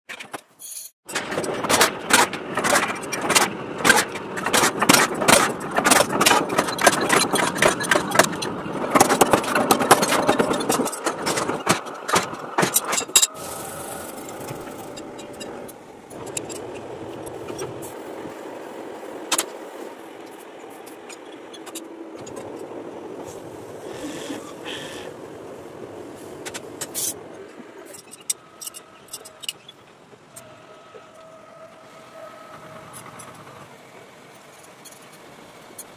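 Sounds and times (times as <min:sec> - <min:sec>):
machinery running: 0:01.1 - 0:35.9.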